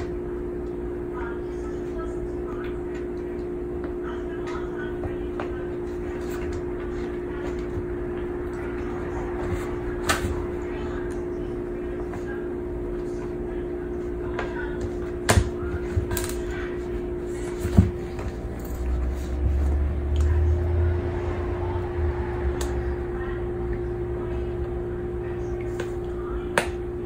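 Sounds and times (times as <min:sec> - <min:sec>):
steady hum: 0:00.0 - 0:27.0
low rumble: 0:18.3 - 0:27.0.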